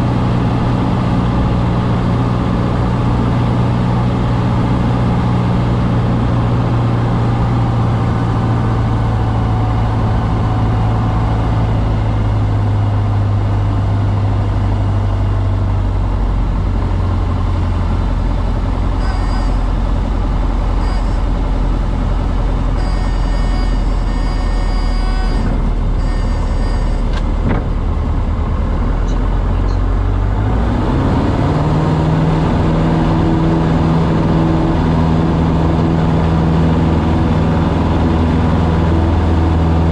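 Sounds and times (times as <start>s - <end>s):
small plane engine droning: 0.0s - 39.9s
thin high whistle: 19.0s - 19.7s, 20.8s - 21.2s, 22.8s - 27.1s.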